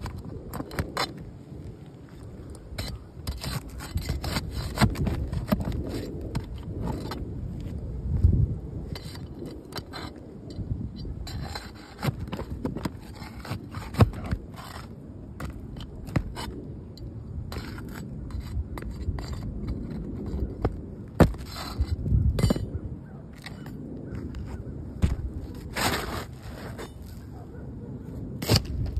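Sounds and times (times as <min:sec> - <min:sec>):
shingles cracking: 0:00.0 - 0:07.2, 0:11.3 - 0:16.6, 0:19.0 - 0:22.7
pry bar scraping shingles: 0:00.0 - 0:07.7, 0:08.9 - 0:27.3, 0:28.4 - 0:28.9.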